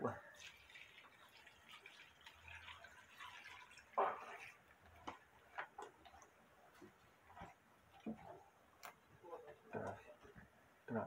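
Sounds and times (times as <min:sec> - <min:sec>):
water trickling into a pot: 0:00.0 - 0:10.0
light clicks of stirring wet slices: 0:04.0 - 0:10.5.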